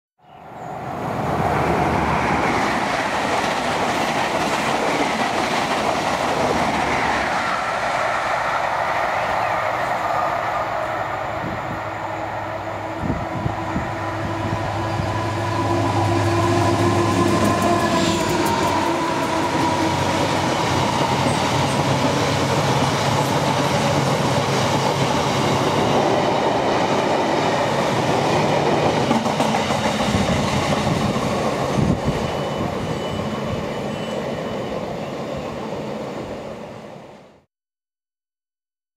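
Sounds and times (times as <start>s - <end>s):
diesel locomotive roaring past: 0.5s - 37.5s.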